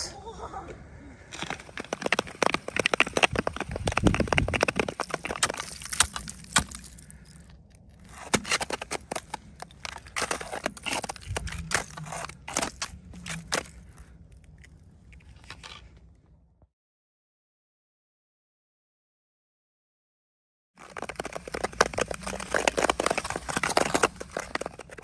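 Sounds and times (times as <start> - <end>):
footsteps crunching on ice: 1.3 - 15.9, 20.8 - 25.0.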